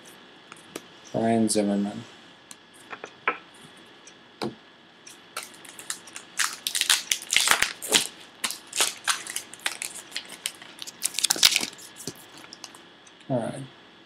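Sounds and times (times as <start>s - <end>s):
wrapper tearing and crinkling: 5.4s - 12.8s.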